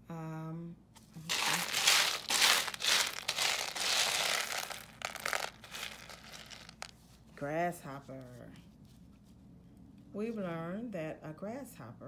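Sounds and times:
dried beans rattling in plastic tub: 0:01.3 - 0:06.9.

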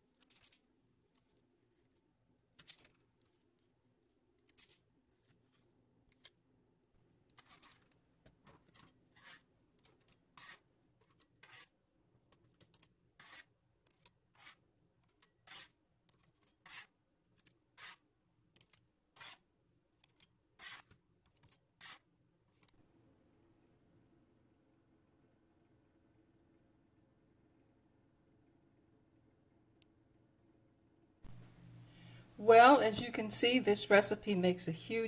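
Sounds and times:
metal spatula scraping baking sheet: 0:08.8 - 0:09.5, 0:10.4 - 0:10.7, 0:11.4 - 0:11.8, 0:13.2 - 0:13.5, 0:14.4 - 0:14.6, 0:16.6 - 0:16.9.

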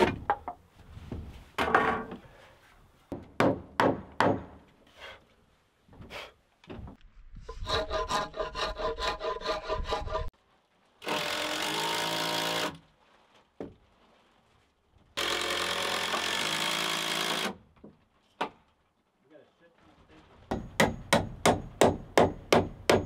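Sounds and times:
rasping strokes on wood: 0:07.5 - 0:10.3.

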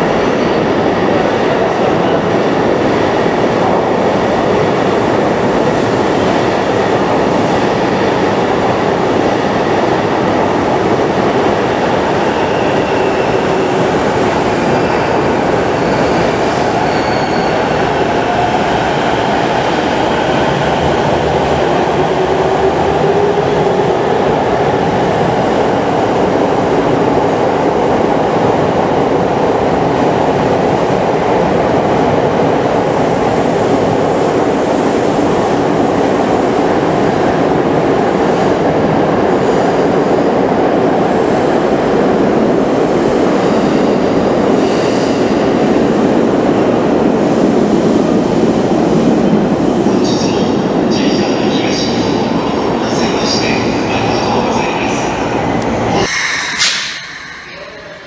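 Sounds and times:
rising whine tones: 0:56.0 - 0:58.0.

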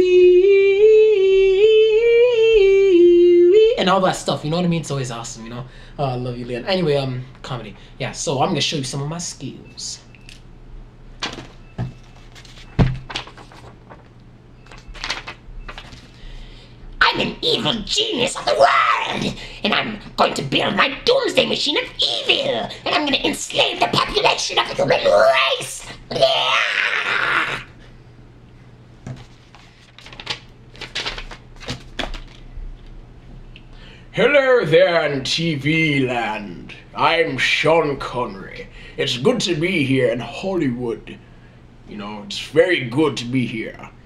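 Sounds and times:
low steady hum: 0:00.0 - 0:44.0
rustling: 0:11.3 - 0:16.2
man's hoarse villain cry: 0:17.1 - 0:19.4, 0:22.0 - 0:27.8.

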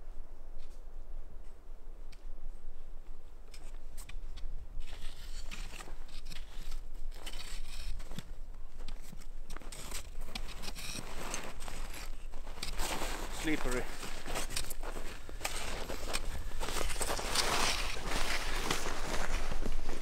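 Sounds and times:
trekking poles clicking and scraping: 0:03.4 - 0:20.0
footsteps crunching in snow: 0:03.6 - 0:20.0.

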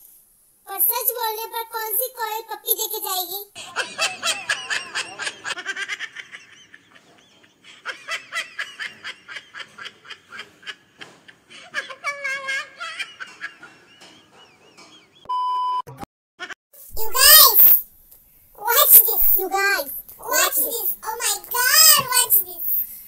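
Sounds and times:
hearty laughter: 0:03.6 - 0:15.2
electronic beep: 0:15.2 - 0:16.1.

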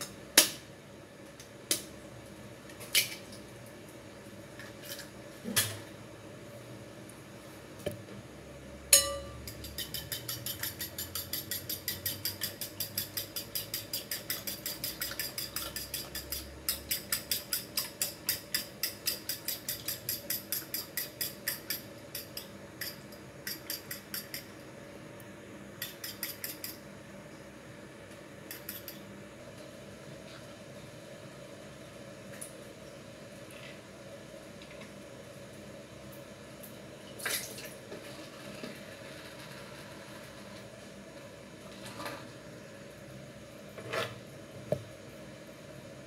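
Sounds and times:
fork beating eggs in glass bowl: 0:09.0 - 0:24.5, 0:25.8 - 0:26.8, 0:28.5 - 0:29.0.

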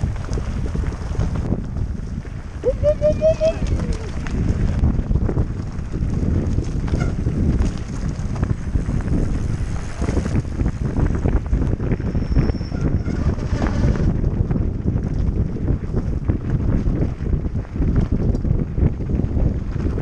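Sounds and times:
bike rattling: 0:00.0 - 0:20.0
wind buffeting microphone: 0:00.0 - 0:20.0
tyres crunching over stones: 0:03.6 - 0:11.4.

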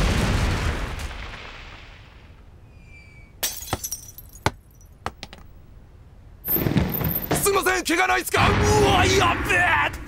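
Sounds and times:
window glass shattering: 0:03.4 - 0:04.6
glass shards clinking: 0:03.4 - 0:05.0.

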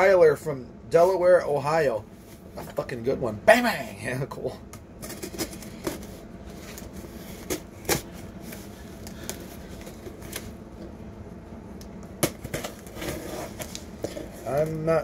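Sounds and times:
cardboard box rustling and scratching: 0:12.3 - 0:14.8.

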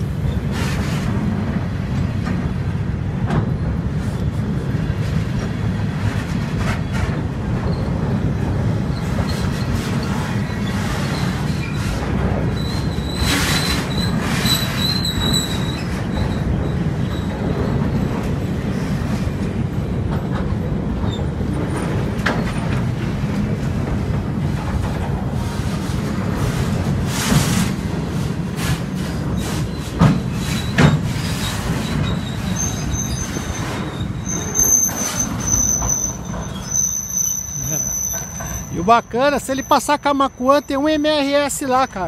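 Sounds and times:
steel wheels rumbling on track: 0:00.0 - 0:42.0
high wheel squeal: 0:07.7 - 0:19.1, 0:29.0 - 0:42.0.

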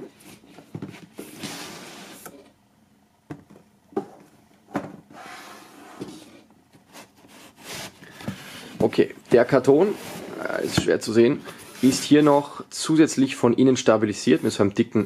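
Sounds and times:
cardboard sliding and scraping: 0:00.3 - 0:02.3, 0:05.1 - 0:08.8, 0:09.6 - 0:12.4.

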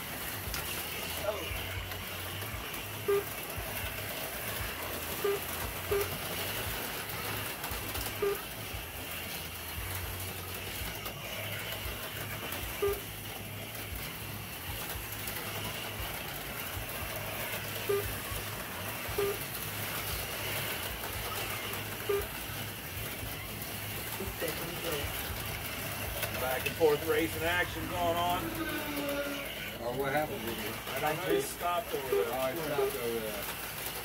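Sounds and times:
slot car motors whirring: 0:00.0 - 0:34.0
short low beeps: 0:19.2 - 0:19.4.

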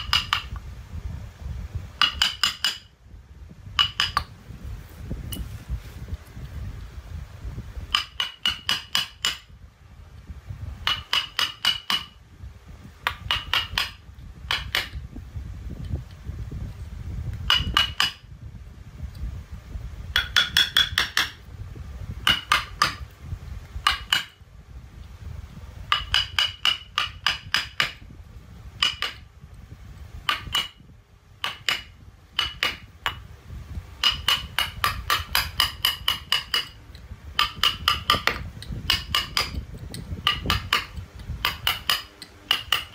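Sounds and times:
mallet tapping a chisel: 0:00.0 - 0:00.6, 0:02.0 - 0:02.9, 0:03.8 - 0:04.3, 0:07.9 - 0:09.5, 0:10.8 - 0:12.2, 0:13.0 - 0:15.0, 0:17.4 - 0:18.2, 0:20.1 - 0:21.5, 0:22.2 - 0:23.1, 0:23.8 - 0:24.4, 0:25.9 - 0:28.0, 0:28.8 - 0:29.3, 0:30.2 - 0:30.8, 0:31.4 - 0:33.3, 0:34.0 - 0:42.9.

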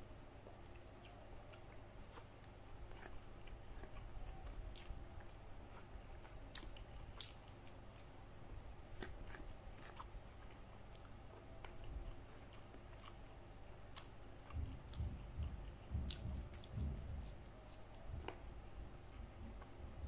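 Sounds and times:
person chewing: 0:00.7 - 0:13.3, 0:13.9 - 0:18.4.

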